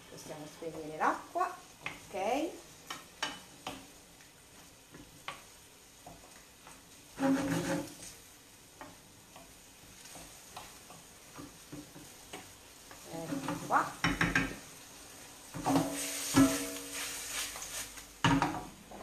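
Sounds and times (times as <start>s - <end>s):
food sizzling in frying pan: 0.0s - 19.0s
pan and utensil clattering: 7.2s - 8.0s, 15.6s - 18.7s.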